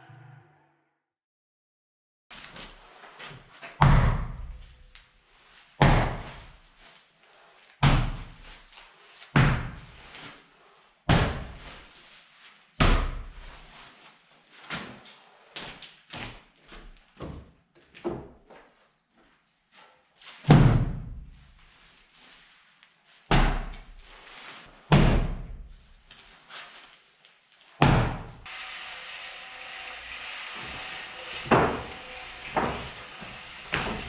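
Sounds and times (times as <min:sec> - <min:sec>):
footsteps on plywood floor: 0:31.5 - 0:34.0.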